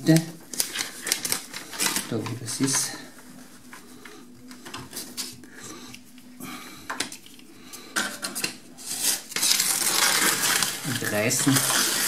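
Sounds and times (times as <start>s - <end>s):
paper rustling: 0.0s - 5.4s, 8.8s - 12.0s
utility knife scraping paper: 8.8s - 12.0s.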